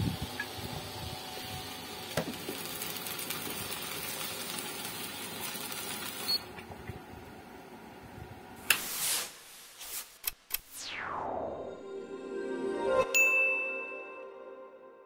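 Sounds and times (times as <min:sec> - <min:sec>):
water boiling in a pot: 0:00.0 - 0:08.4.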